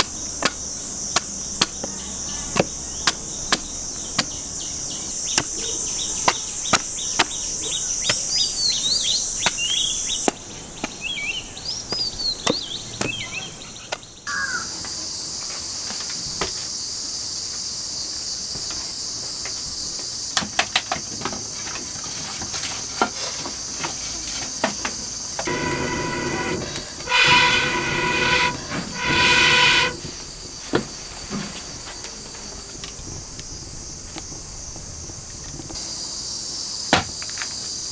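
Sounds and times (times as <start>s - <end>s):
cricket and insect chorus: 0.0s - 37.9s
blowing through metal blowpipe: 25.4s - 30.1s.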